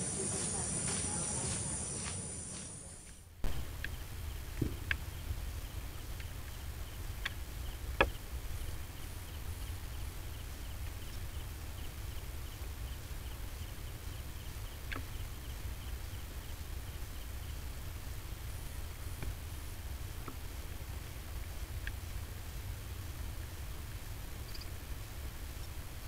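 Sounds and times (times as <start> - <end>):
insect chirping: 0.0 - 26.0
steady low rumble: 0.0 - 26.0.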